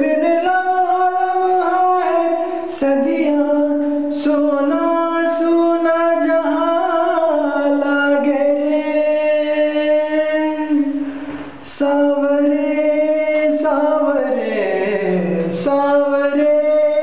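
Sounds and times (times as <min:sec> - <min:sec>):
man singing unaccompanied: 0:00.0 - 0:17.0.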